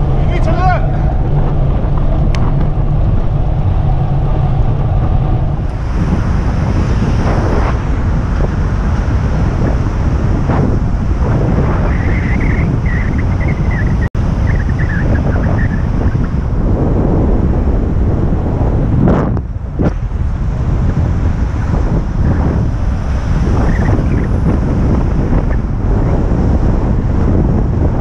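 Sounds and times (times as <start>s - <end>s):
road and traffic noise: 0.0s - 28.0s
wind buffeting microphone: 0.0s - 28.0s
wavering high-pitched squeal: 10.6s - 16.3s.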